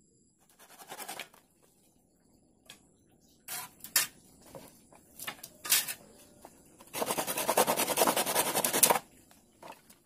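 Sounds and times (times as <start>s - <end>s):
knife scraping wooden stick: 6.9s - 9.0s.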